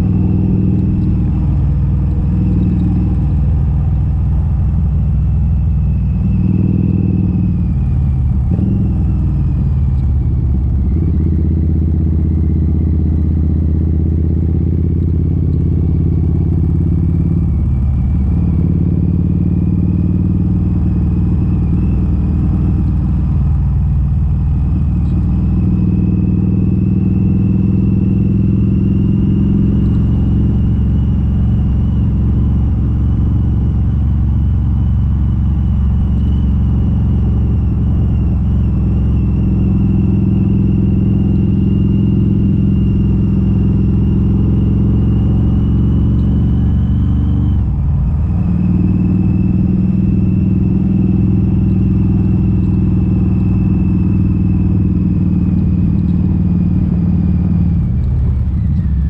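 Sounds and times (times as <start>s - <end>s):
motorcycle engine while riding: 0.0s - 59.0s.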